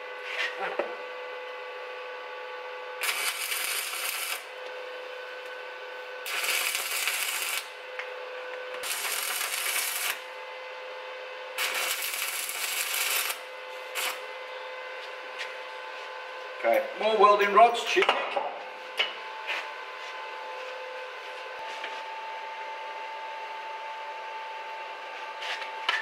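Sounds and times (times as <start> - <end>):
steady hum: 0.0 - 23.1
welding electrode crackling: 3.0 - 4.6, 6.2 - 7.8, 8.7 - 10.3, 11.6 - 14.2.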